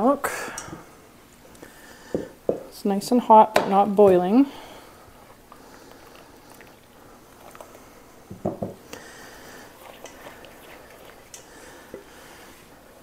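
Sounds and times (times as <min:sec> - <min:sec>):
spatula stirring in saucepan: 0:04.5 - 0:13.0.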